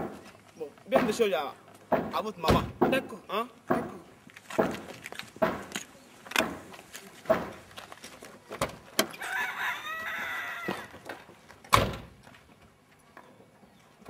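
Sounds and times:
car door knocks and clunks: 1.9s - 3.1s
rooster crowing: 9.1s - 11.0s
car door shutting: 11.7s - 12.2s.

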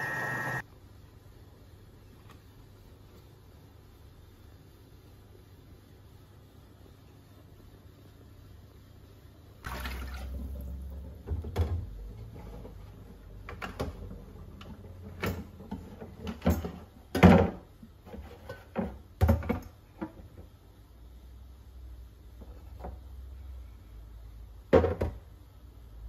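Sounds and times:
water splashing into sink: 9.6s - 12.0s.

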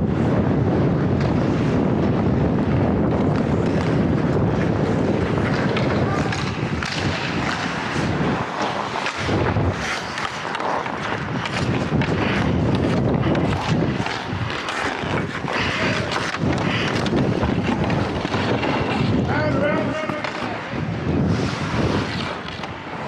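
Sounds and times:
wind rushing over microphone: 0.0s - 23.0s
skate blades scraping ice: 1.0s - 23.0s.

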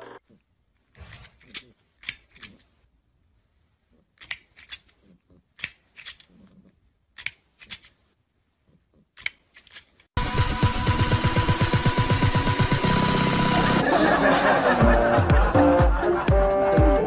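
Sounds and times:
plastic toy clacking: 5.6s - 6.4s
loud music: 10.2s - 17.0s.

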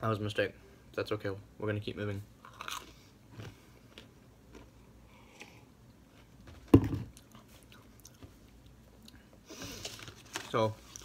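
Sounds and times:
person drinking and chewing: 2.4s - 5.7s
loud dull thump: 6.7s - 7.1s.

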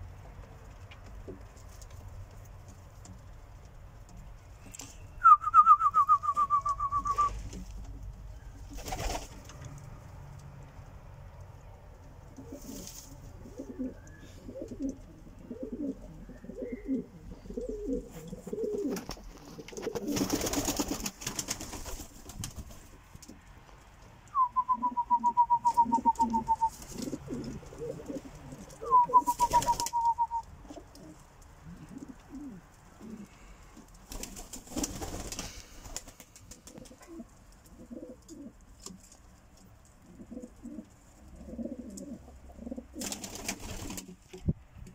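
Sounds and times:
pigeons cooing: 12.4s - 21.0s, 24.4s - 33.7s, 36.6s - 38.6s, 40.0s - 44.1s.

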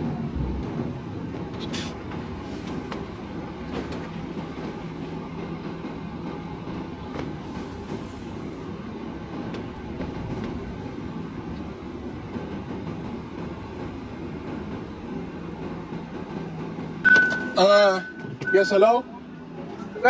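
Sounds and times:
car engine and tyre rumble: 0.0s - 15.7s.

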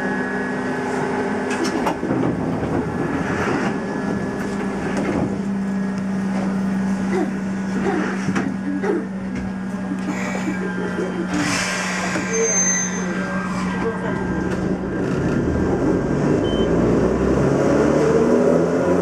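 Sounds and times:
electric train equipment hum: 0.0s - 12.5s.

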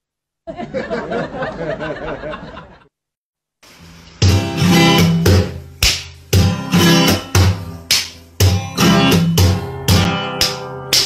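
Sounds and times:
strummed ukulele music: 4.2s - 11.0s.

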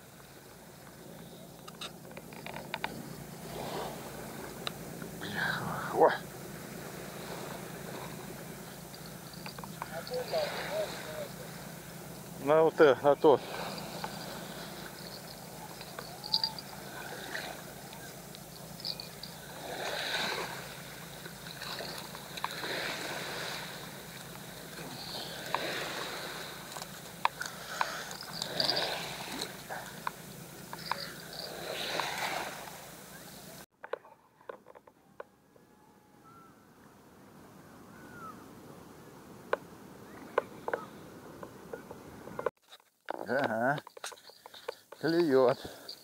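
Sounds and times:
small waves washing against bank: 5.9s - 33.6s
faint bird calls: 13.5s - 21.9s, 35.4s - 38.7s, 40.0s - 41.1s.

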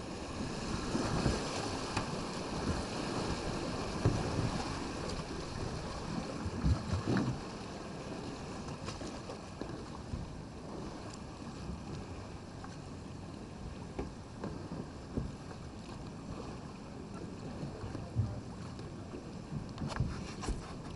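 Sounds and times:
river water rushing and splashing: 0.0s - 9.9s
kayak knocks: 0.7s - 7.7s, 13.6s - 20.9s.

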